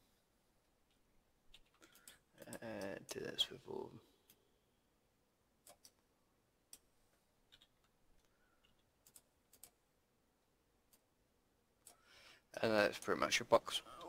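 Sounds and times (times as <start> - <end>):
keyboard keys clicking: 7.5 - 9.8.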